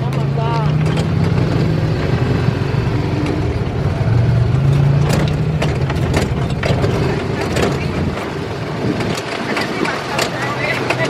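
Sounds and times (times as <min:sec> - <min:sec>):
knocks from bumpy ride: 0:00.0 - 0:02.3, 0:04.5 - 0:11.0
utility vehicle engine running: 0:00.0 - 0:11.0.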